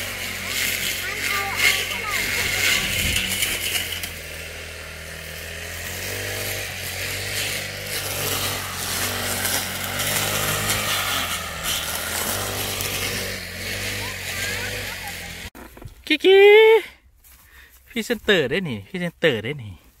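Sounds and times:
small engine running: 0.0s - 15.8s.

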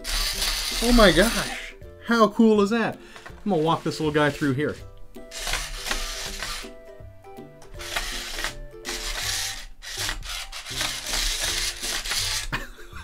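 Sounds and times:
plastic legs scraping on wood: 0.0s - 1.6s, 3.2s - 6.8s, 7.8s - 12.5s.

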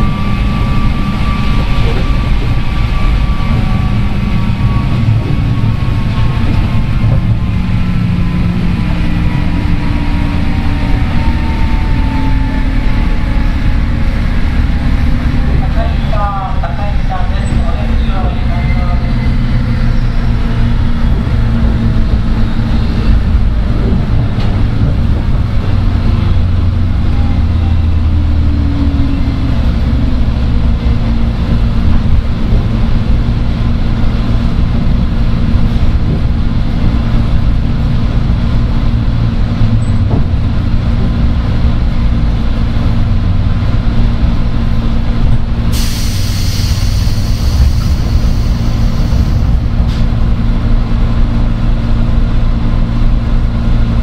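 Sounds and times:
wheels rumbling on rail: 0.0s - 54.0s
loud hiss: 45.7s - 49.8s.

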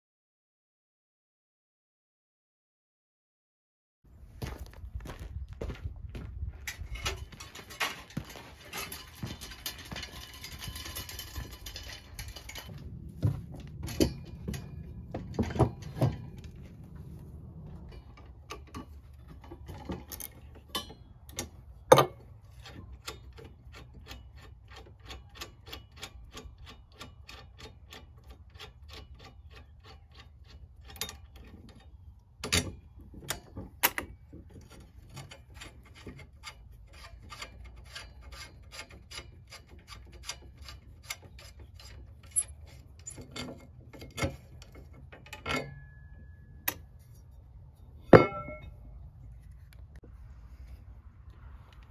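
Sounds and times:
crunching on gravel: 4.3s - 15.1s
sharp metal knocks: 8.9s - 16.7s, 17.8s - 24.2s, 48.0s - 49.0s.

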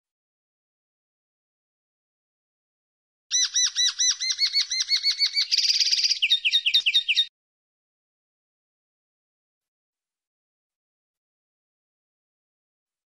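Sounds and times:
linnet singing: 3.3s - 7.3s.

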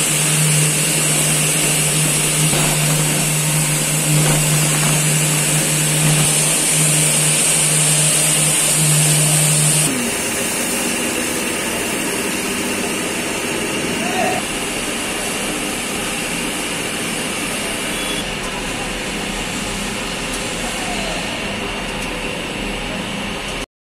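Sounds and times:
low hum: 0.0s - 10.8s
blender mechanical drone: 0.0s - 21.8s.

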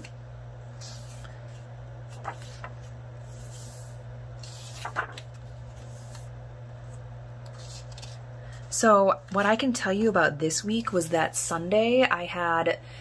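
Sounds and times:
steady low hum: 0.0s - 13.0s
notebook pages turning: 0.8s - 6.3s, 7.4s - 8.6s.

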